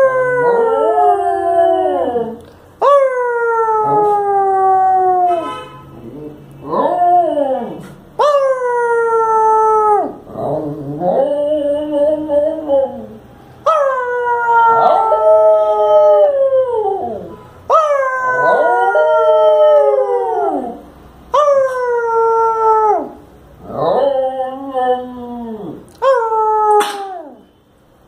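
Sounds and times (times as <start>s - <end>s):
dog howling: 6.6s - 27.4s.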